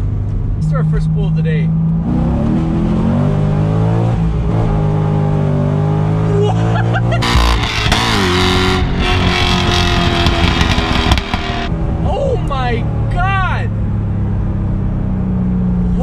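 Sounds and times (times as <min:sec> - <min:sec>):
car engine at full throttle: 0:00.0 - 0:16.0
wind noise: 0:07.2 - 0:12.5.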